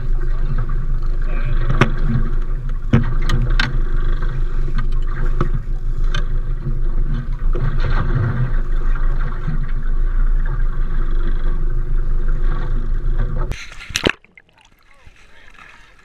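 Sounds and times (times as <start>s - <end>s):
boat engine rumbling: 0.0s - 16.0s.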